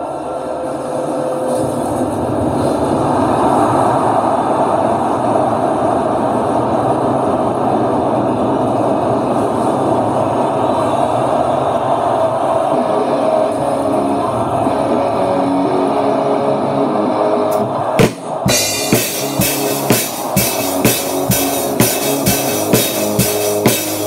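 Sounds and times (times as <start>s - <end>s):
stadium crowd roaring: 9.7s - 24.0s.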